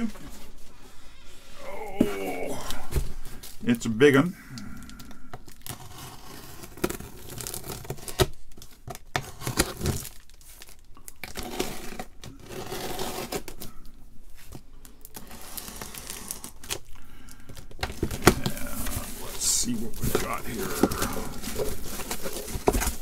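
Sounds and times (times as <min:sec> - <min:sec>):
plastic crinkling: 0:04.6 - 0:23.0
packing tape tearing: 0:05.4 - 0:13.8, 0:15.0 - 0:23.0.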